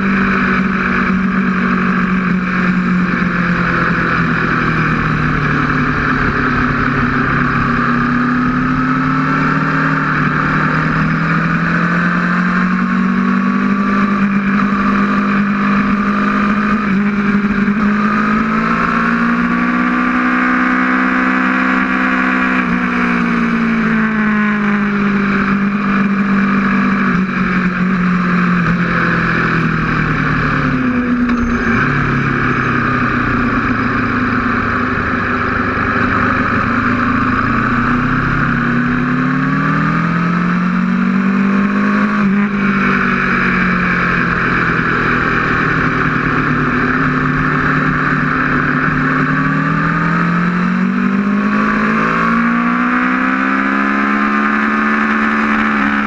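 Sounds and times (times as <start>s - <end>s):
motorcycle engine at speed: 0.0s - 56.0s.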